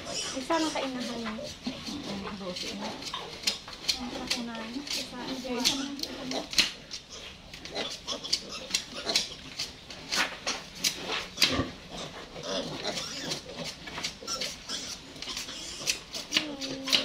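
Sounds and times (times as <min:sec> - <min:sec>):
piglet squealing and grunting: 0:00.0 - 0:02.2, 0:04.9 - 0:09.8, 0:11.3 - 0:17.0.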